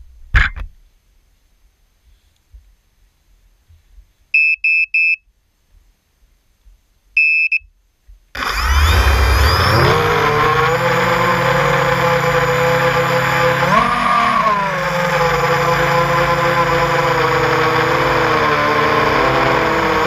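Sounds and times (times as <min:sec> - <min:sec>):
drone motors whining: 0:08.4 - 0:20.0.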